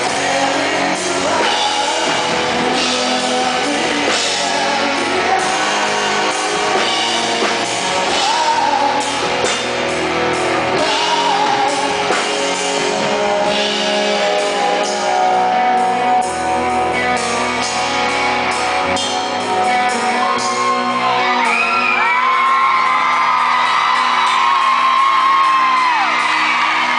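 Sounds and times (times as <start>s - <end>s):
man singing: 0.0s - 17.9s
live rock band playing: 0.0s - 26.9s
high shouts: 20.1s - 26.9s.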